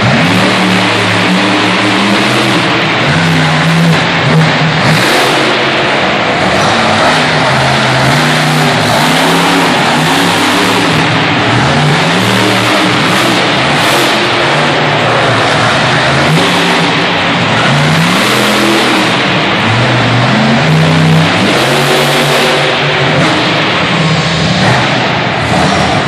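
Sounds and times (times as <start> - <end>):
truck engine revving: 0.0 - 26.0.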